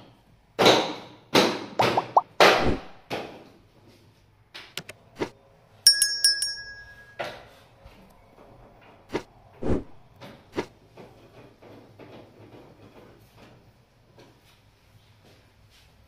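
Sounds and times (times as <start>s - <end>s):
small bell struck rapidly: 5.9s - 7.2s.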